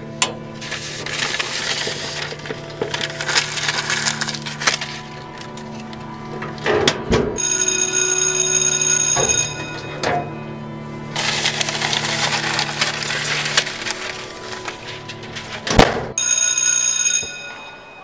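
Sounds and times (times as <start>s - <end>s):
paper rustling and crinkling: 0.5s - 6.7s, 11.1s - 16.1s
electric school bell ringing: 7.4s - 14.8s, 16.2s - 18.0s.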